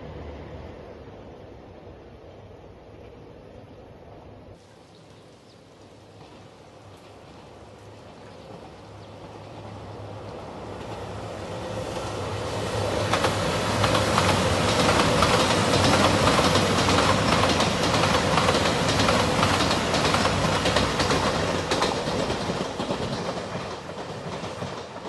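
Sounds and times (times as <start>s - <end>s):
diesel train engine rumble: 0.0s - 25.0s
train wheels clacking on rail joints: 5.9s - 25.0s.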